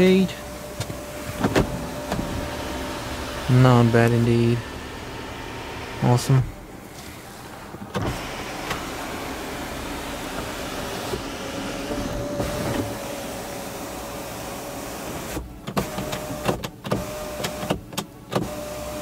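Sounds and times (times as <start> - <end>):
electric motor whining: 0.4 - 13.8.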